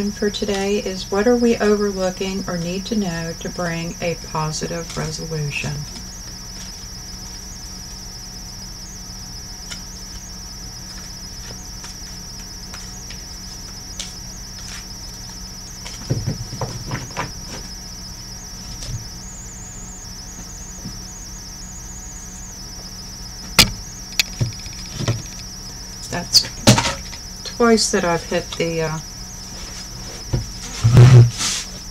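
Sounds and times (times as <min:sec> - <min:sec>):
crickets chirping: 0:00.0 - 0:31.9
sharp knocks: 0:23.6 - 0:25.4.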